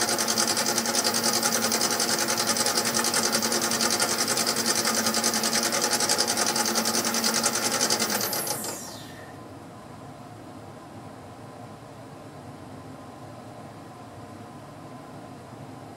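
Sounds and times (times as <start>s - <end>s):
lathe whine and pulse: 0.0s - 9.4s.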